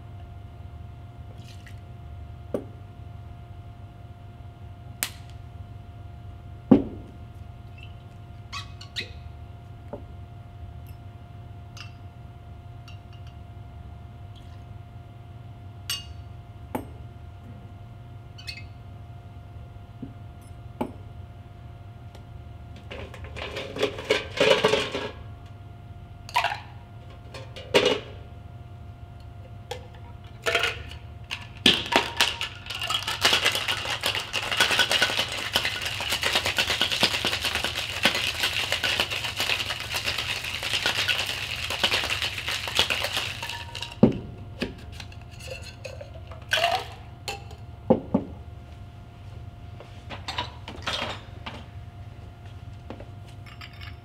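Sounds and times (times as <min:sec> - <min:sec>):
cocktail shaker rattling with ice: 0:30.4 - 0:44.0, 0:45.0 - 0:47.0
ice cubes clinking: 0:30.5 - 0:44.0.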